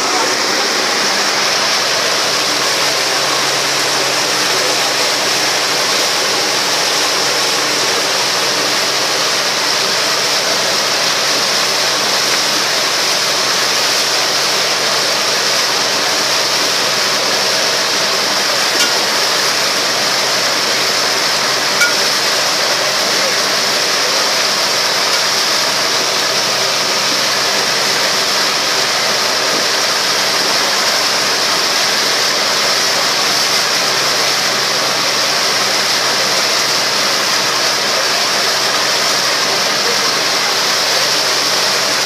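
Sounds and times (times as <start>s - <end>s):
ferry engine humming: 0.0s - 13.2s, 13.8s - 28.6s
churning wake water: 0.0s - 42.0s.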